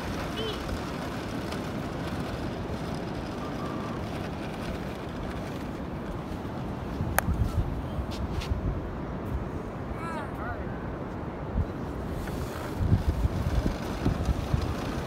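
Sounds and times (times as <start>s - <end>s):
ocean surf: 0.0s - 7.0s
wind on the beach: 0.0s - 15.0s.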